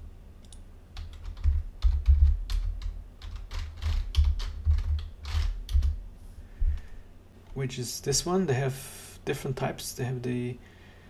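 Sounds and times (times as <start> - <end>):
keyboard typing: 0.4 - 6.0.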